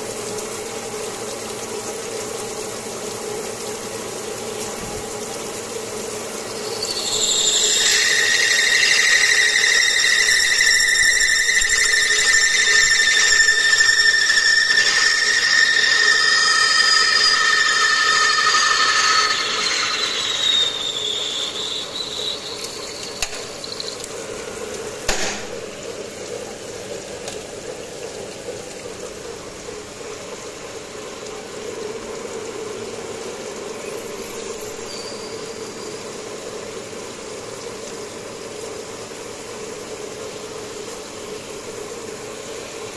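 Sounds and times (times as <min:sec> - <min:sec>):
machine running hum: 0:03.6 - 0:26.4
cutting tool squealing: 0:06.4 - 0:24.1, 0:34.0 - 0:36.0
sharp click: 0:25.1 - 0:25.6.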